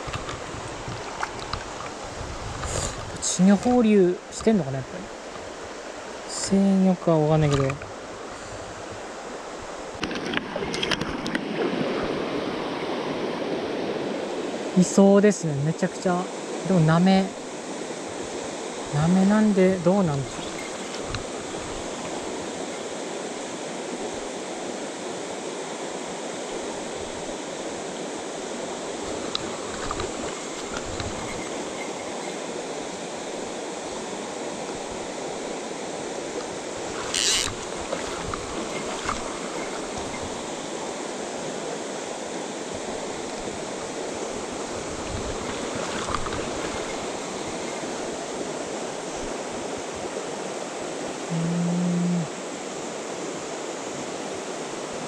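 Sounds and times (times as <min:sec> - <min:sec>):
stream rushing over rocks: 0:00.0 - 0:51.4, 0:52.2 - 0:55.0.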